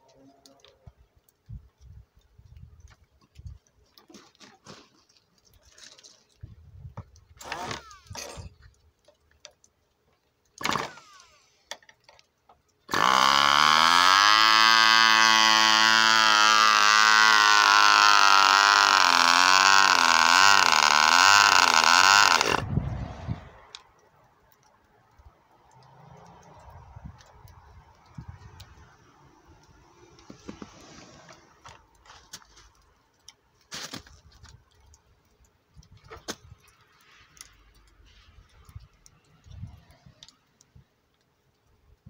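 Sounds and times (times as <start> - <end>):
electric starter bursts: 7.4 - 8.4, 10.6 - 11.7, 12.9 - 22.7.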